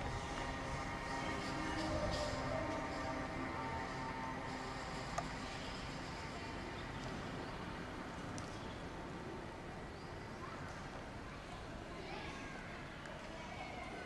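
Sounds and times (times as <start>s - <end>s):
distant city traffic: 0.0s - 13.9s.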